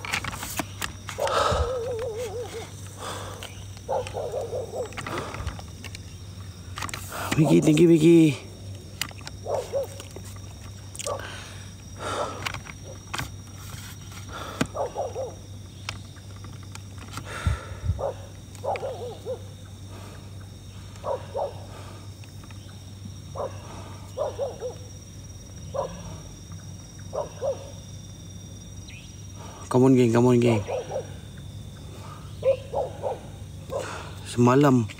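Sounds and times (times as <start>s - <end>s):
steady low hum: 0.0s - 34.9s.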